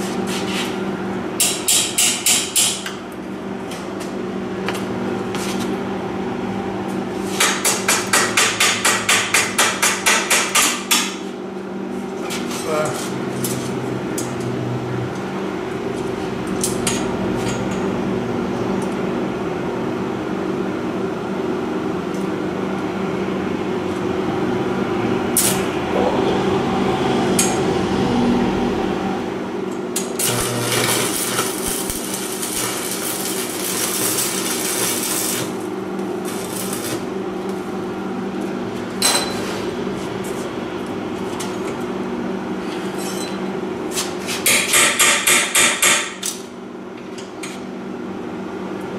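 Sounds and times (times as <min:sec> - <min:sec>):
steady low hum: 0:11.2 - 0:42.6
arc welding crackling: 0:29.8 - 0:37.7.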